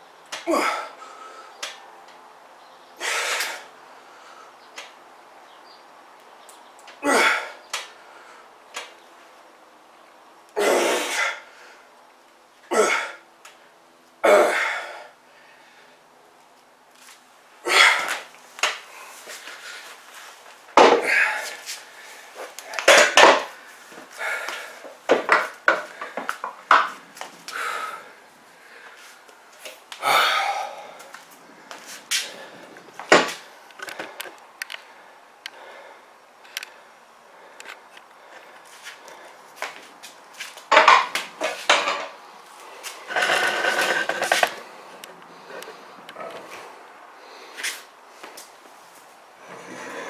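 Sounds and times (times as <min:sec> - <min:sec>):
man breathing forcefully: 0:03.0 - 0:04.6, 0:17.6 - 0:20.0, 0:21.0 - 0:26.5, 0:27.4 - 0:29.2, 0:30.0 - 0:39.6.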